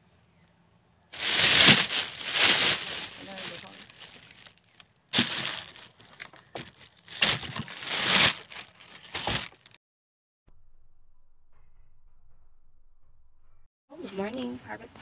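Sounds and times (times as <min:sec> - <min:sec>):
plastic bag rustling: 0:01.2 - 0:09.8
faint low rumble: 0:10.5 - 0:13.7.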